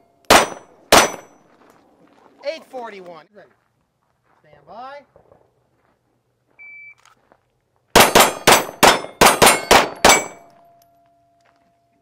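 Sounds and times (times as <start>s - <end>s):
bullets clanging off steel plates: 0.3s - 1.4s, 8.0s - 10.9s
pistol shots: 0.3s - 1.4s, 8.0s - 10.5s.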